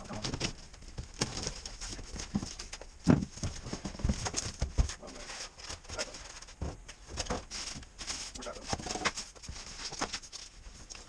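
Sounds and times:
cardboard rustling: 0.0s - 11.0s.

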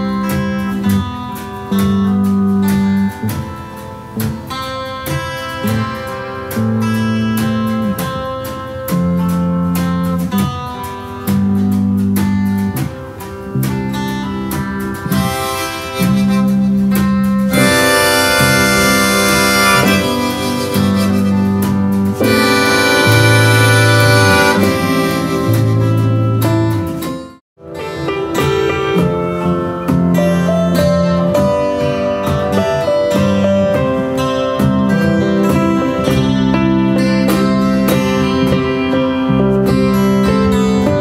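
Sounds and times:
cajon played with brushes: 0.0s - 41.0s
electric bass line: 0.0s - 41.0s
piano: 0.0s - 41.0s
harmonica chords: 13.9s - 41.0s.

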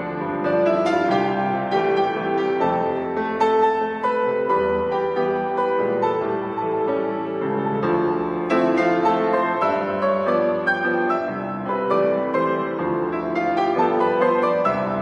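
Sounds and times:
grand piano solo: 0.0s - 15.0s.

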